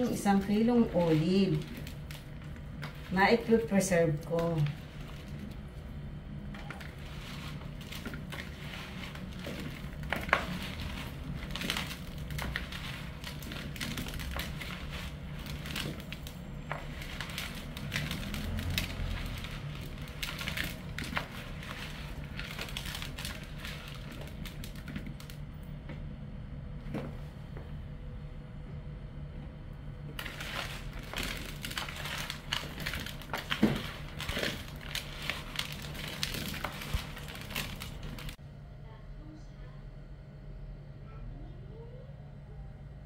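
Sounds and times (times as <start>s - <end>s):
hands squeezing olives in bowl: 0.0s - 25.4s, 30.1s - 38.4s.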